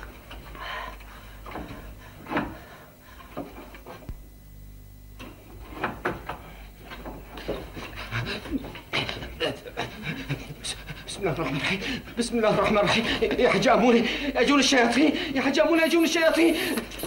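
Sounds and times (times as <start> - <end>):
man breathing heavily: 0.3 - 4.1, 7.3 - 12.2, 14.0 - 14.4.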